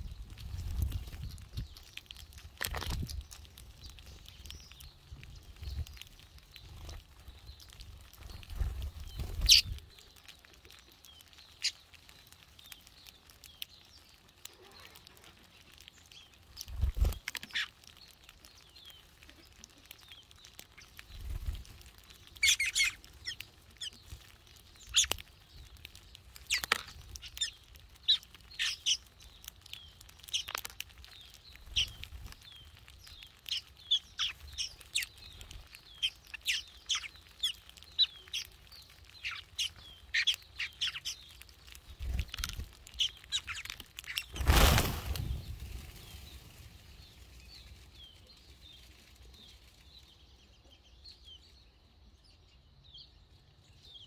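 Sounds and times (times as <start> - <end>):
wings fluttering: 0.0 - 12.8, 14.3 - 50.0
birds chirping rapidly: 0.0 - 54.0
flock flushing rush of wings: 44.3 - 46.4.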